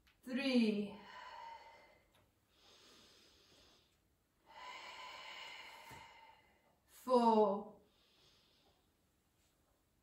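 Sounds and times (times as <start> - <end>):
person breathing softly: 1.0 - 6.9, 7.8 - 9.2.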